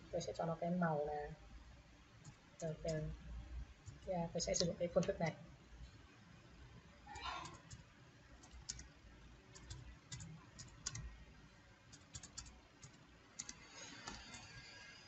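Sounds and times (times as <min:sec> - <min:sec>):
faint keyboard typing: 0:02.2 - 0:05.3, 0:07.1 - 0:15.0.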